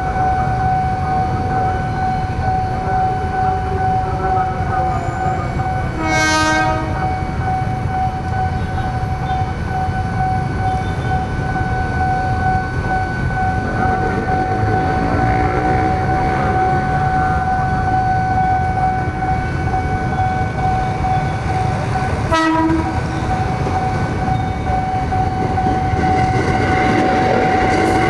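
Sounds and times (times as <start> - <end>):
level crossing alarm tone: 0.0 - 28.0
rumble of motorcycles and traffic: 0.0 - 28.0
train horn: 5.9 - 7.2, 22.3 - 23.2.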